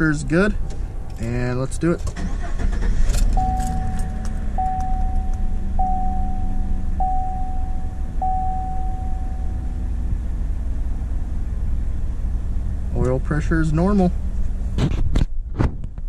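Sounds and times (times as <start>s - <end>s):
car engine idling: 0.0s - 15.0s
dashboard warning chime: 3.3s - 10.0s.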